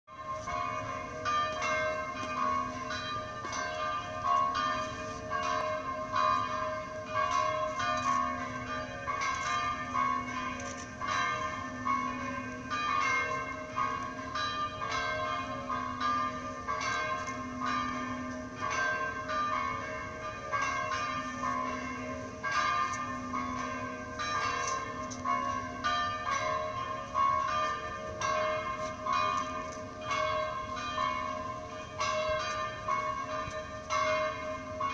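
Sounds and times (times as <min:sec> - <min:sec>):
church bells pealing: 0:00.1 - 0:34.9
deep hum of large bell: 0:00.1 - 0:34.9.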